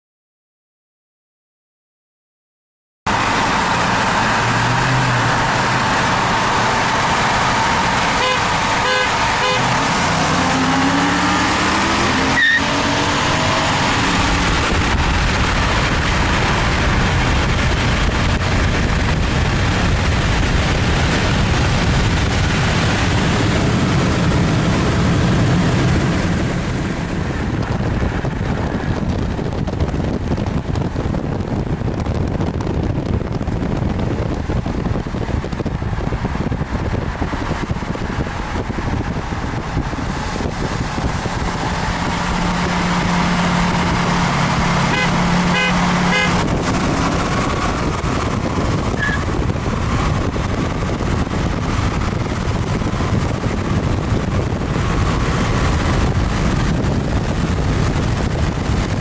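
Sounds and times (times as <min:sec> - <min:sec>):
car engines accelerating: 0:03.1 - 0:59.0
wind and road noise: 0:03.1 - 0:59.0
horn toots: 0:08.0 - 0:11.0, 0:44.8 - 0:46.6.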